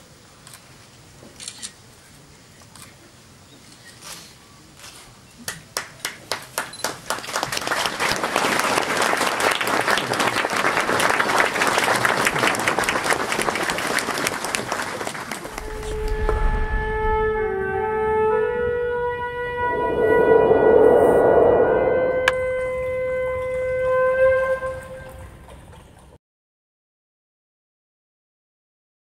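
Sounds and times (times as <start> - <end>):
crowd applauding: 5.5 - 16.2
music sting tones: 15.5 - 18.5
low boom: 15.5 - 23.0.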